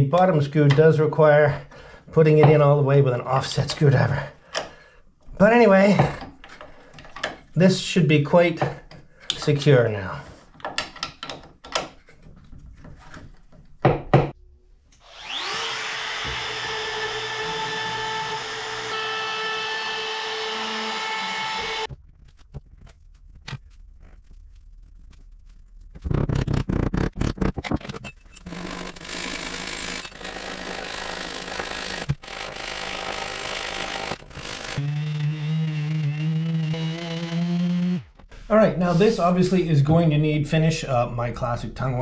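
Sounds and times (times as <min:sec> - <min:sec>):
power sander on wood: 0:15.0 - 0:21.9, 0:28.5 - 0:38.2.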